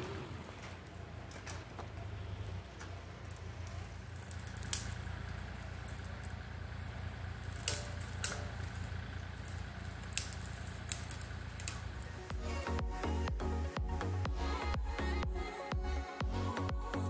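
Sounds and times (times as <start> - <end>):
diesel engine droning: 0.0 - 17.0
sharp clicks: 4.2 - 5.1, 7.4 - 12.1.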